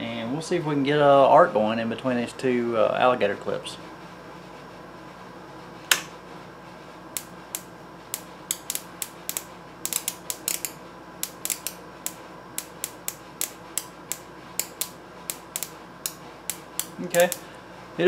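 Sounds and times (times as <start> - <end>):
high-voltage sparks snapping: 7.2 - 17.4.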